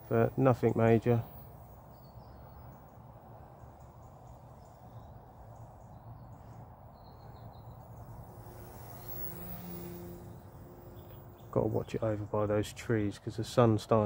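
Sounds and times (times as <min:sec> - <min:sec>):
faint bird chirps: 0:00.0 - 0:12.5
low steady rumble: 0:07.8 - 0:12.6.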